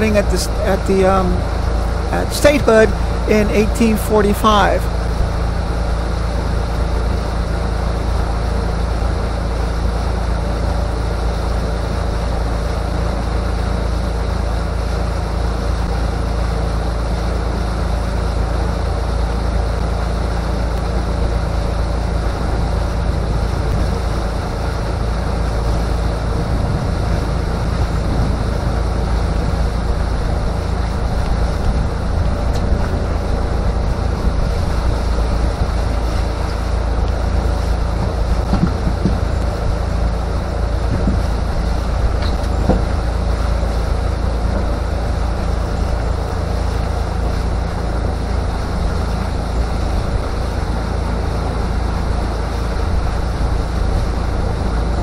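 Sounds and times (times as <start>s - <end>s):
outboard motor droning: 0.0s - 55.0s
water rushing past boat: 0.0s - 55.0s
wind buffeting microphone: 20.9s - 55.0s.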